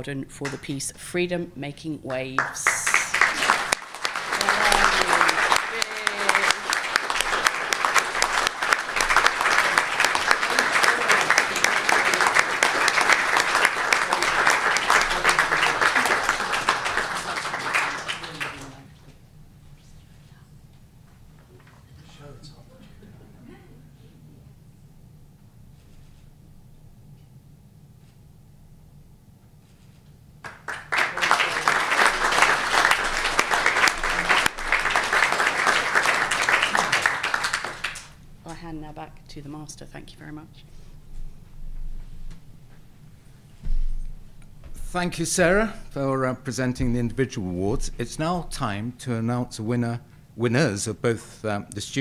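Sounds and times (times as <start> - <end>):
audience applauding: 2.4 - 19.0, 30.4 - 38.2.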